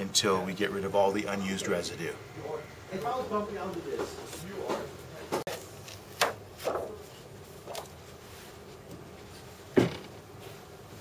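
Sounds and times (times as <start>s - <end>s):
paper handling knocks and rubs: 4.0s - 8.2s.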